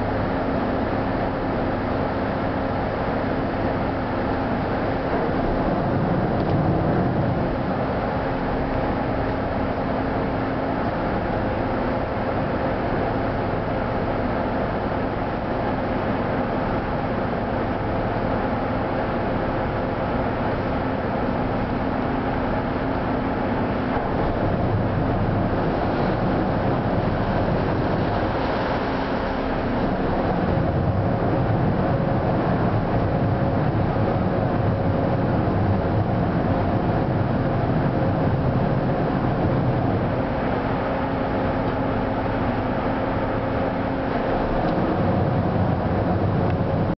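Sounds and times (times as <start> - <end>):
boat engine running: 0.0 - 47.0.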